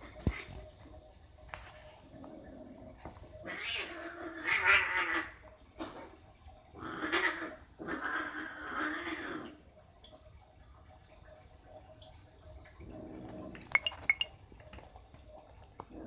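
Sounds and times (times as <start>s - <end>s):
cats fighting and yowling: 0.0s - 0.9s, 2.0s - 9.7s.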